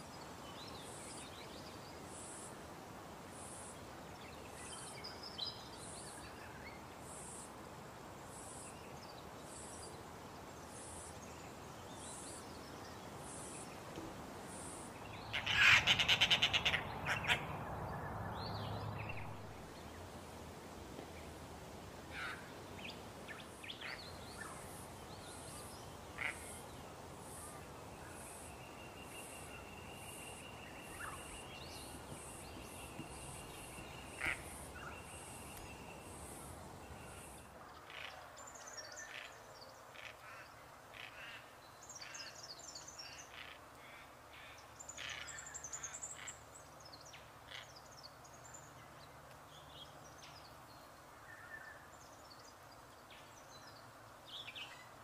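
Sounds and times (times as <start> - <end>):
wild birds calling: 14.4 - 20.1, 22.0 - 46.5.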